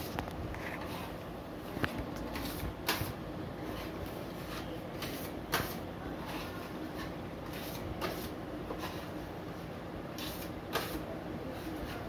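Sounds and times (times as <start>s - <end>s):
putty knife scraping plaster wall: 2.3s - 9.2s, 10.2s - 12.0s.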